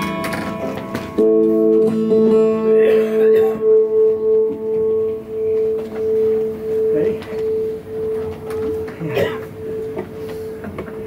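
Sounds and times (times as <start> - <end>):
faint lower tone: 2.7 - 11.0
pulsing held tone: 3.6 - 11.0.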